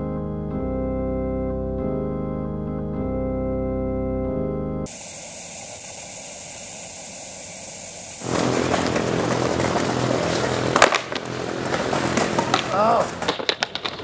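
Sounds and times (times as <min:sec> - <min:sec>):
keyboard music: 0:00.0 - 0:04.9
static hiss: 0:04.9 - 0:08.6
skateboard rolling on concrete ledge: 0:08.2 - 0:14.0.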